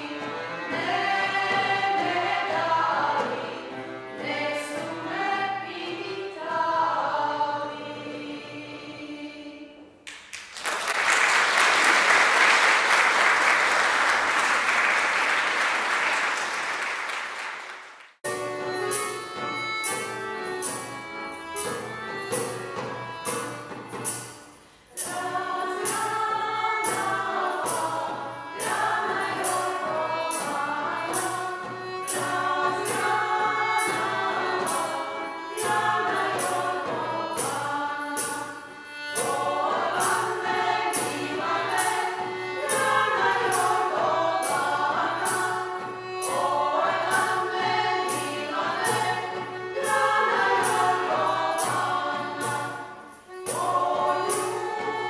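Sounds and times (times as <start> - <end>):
women singing in harmony: 0.0 - 9.8, 25.0 - 55.0
accordion: 0.0 - 9.9, 11.4 - 55.0
audience applauding: 10.1 - 18.2
hand drum beat: 39.2 - 52.8.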